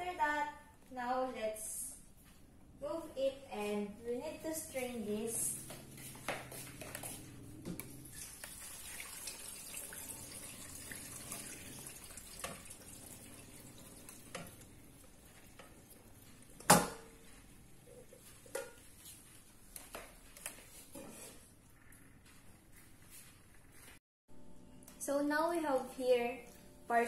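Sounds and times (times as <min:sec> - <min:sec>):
liquid pouring and splashing: 0:07.8 - 0:16.2.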